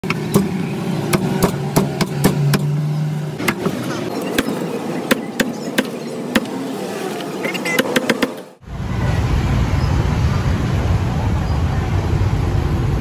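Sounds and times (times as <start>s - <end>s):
street noise: 0.0s - 13.0s
cleaver chopping on block: 4.4s - 6.6s.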